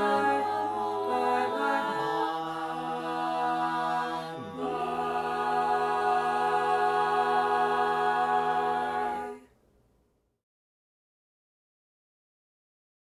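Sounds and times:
a cappella group singing chords: 0:00.0 - 0:09.5.

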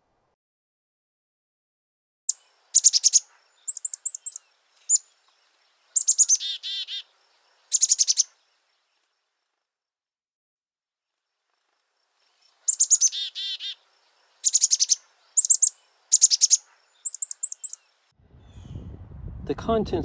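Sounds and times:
small songbird chirping: 0:02.3 - 0:09.6, 0:11.3 - 0:18.9.

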